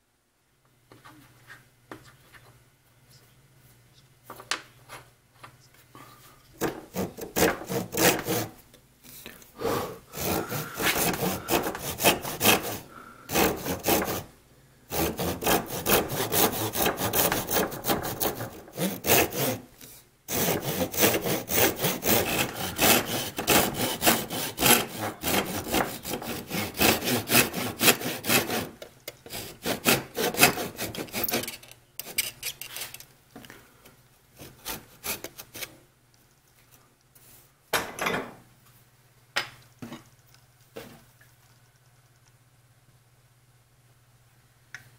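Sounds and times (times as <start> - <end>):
hand saw rasping through wood: 6.6 - 8.6, 10.2 - 14.3, 14.9 - 19.7, 20.3 - 32.2, 34.4 - 35.7.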